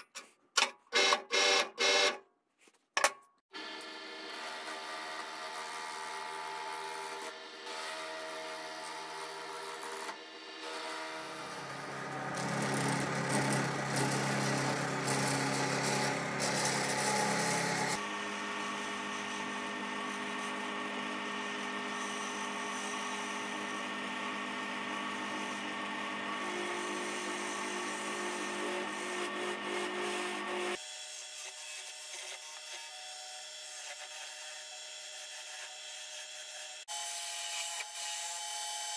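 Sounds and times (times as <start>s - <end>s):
wood lathe motor hum: 3.6s - 30.8s
gouge scraping spinning wood: 11.2s - 30.8s.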